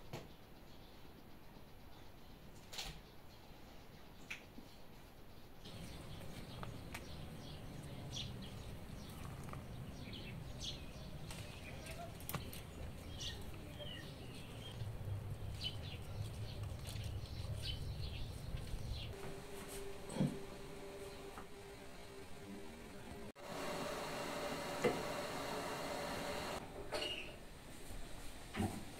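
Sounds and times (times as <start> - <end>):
leaves and twigs rustling: 10.8 - 19.9.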